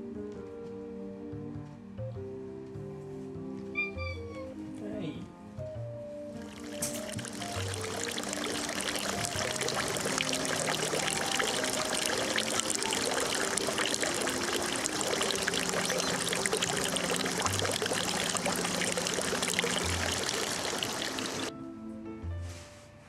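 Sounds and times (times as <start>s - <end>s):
water trickling into stone basin: 6.4s - 21.5s.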